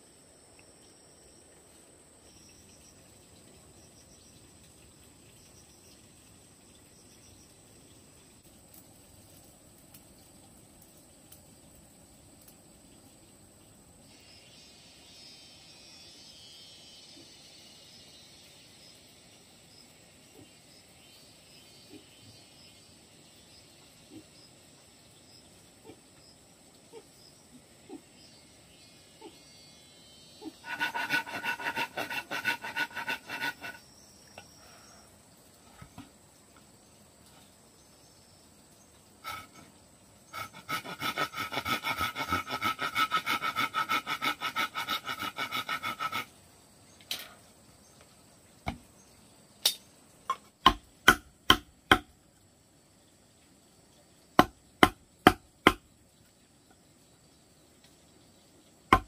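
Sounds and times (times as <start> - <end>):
handsaw cutting bamboo: 30.6 - 33.8, 40.4 - 46.3
mallet striking chisel: 50.3 - 52.1, 54.4 - 55.8.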